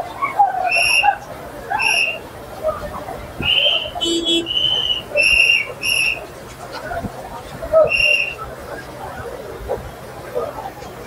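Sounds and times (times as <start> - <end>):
murmur of voices: 0.0 - 11.0
hand whistle blasts: 0.7 - 1.2, 1.8 - 2.2, 3.4 - 6.3, 7.9 - 8.4.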